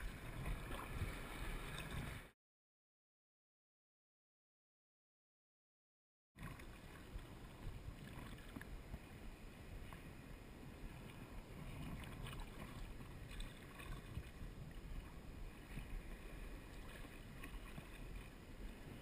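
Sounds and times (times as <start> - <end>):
small waves lapping against hull: 0.0 - 2.3, 6.4 - 19.0.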